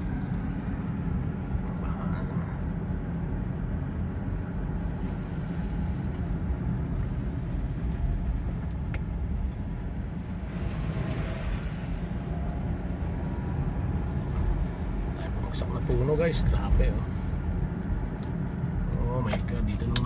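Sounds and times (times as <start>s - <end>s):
car cabin engine and road rumble: 0.0s - 20.0s
tyres hissing on wet road: 10.5s - 12.2s.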